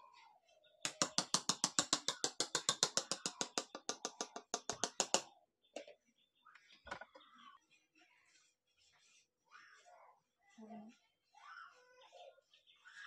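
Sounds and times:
spoon tapping on metal pot: 0.9 - 5.2.

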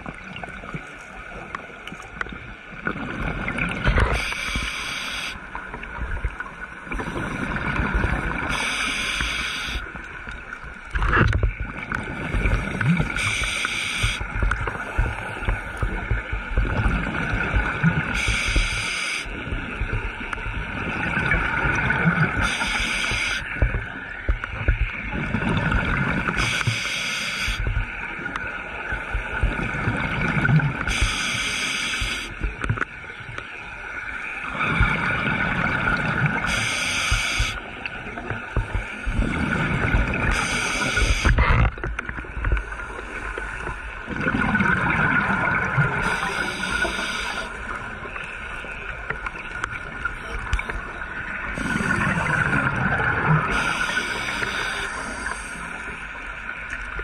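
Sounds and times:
exhaled bubbles underwater: 0.0 - 57.0
regulator hiss: 4.2 - 5.4, 8.5 - 9.9, 13.2 - 14.2, 18.2 - 19.3, 22.4 - 23.5, 26.4 - 27.6, 30.9 - 32.3, 36.5 - 37.6, 40.3 - 41.4, 46.0 - 47.6, 53.5 - 55.9.

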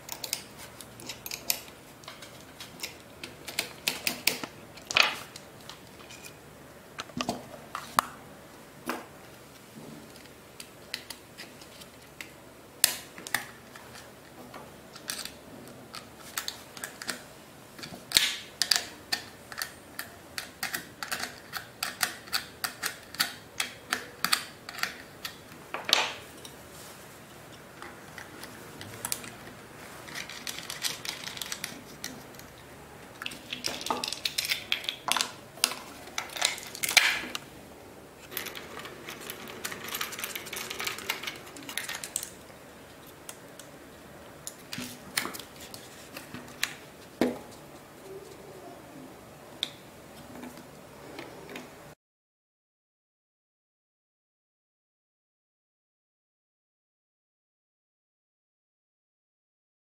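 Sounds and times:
plastic and metal parts clicking: 17.8 - 25.4, 27.8 - 32.6, 38.3 - 43.7.

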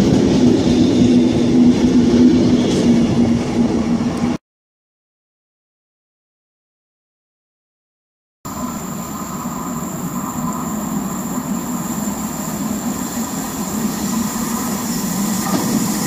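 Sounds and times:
high squeal from train wheels: 0.0 - 3.6, 8.5 - 16.0
electric train running: 8.5 - 16.0.

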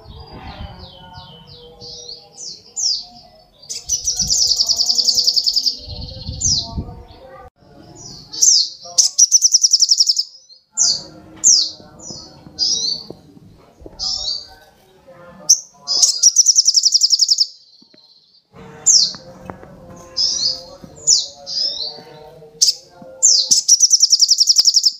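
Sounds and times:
bird chirping: 0.0 - 14.6, 15.4 - 24.9
fast buzzy bird trills: 16.0 - 17.5.

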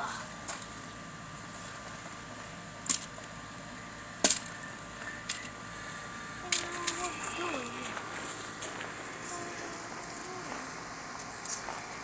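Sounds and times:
faint background hum: 0.0 - 12.0.

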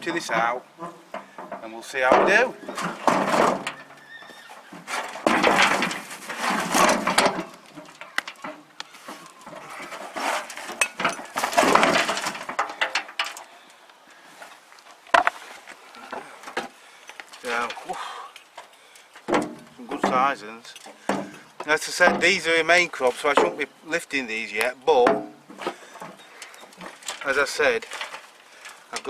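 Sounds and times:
plastic pot scraping wheelbarrow: 0.0 - 12.9
compost sliding: 0.0 - 18.3, 19.2 - 29.0
knocks on wheelbarrow: 1.2 - 3.8, 4.8 - 7.5, 25.0 - 25.4.

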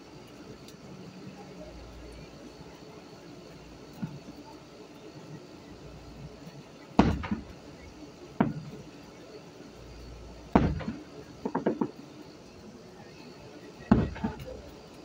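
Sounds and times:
firework shells booming: 7.0 - 7.7, 8.4 - 8.9, 10.5 - 12.0, 13.9 - 14.7.

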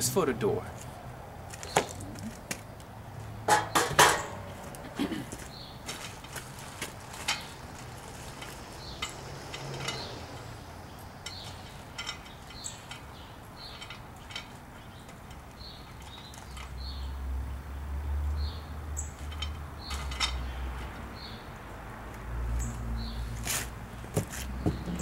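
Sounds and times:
sheet metal panel clanking: 3.5 - 4.6.

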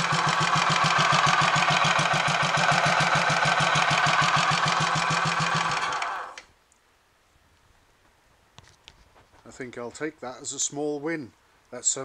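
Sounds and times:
motorcycle engine idling: 0.0 - 6.4.

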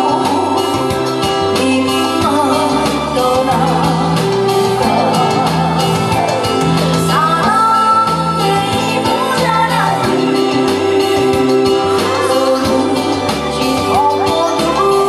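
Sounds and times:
backing music with steady beat: 0.0 - 15.0
woman singing into microphone: 0.0 - 15.0.

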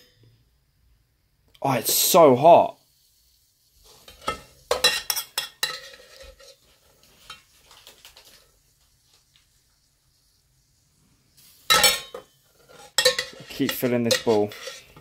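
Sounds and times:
metal spoon scraping a steel pot: 3.8 - 7.5, 11.7 - 15.0.

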